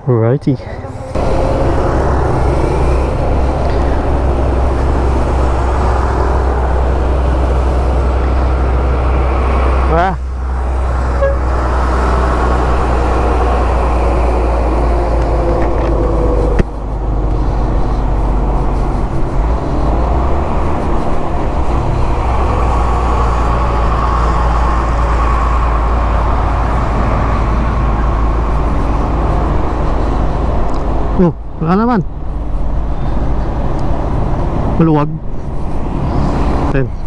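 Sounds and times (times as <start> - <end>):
wind on microphone: 0.8 - 31.5.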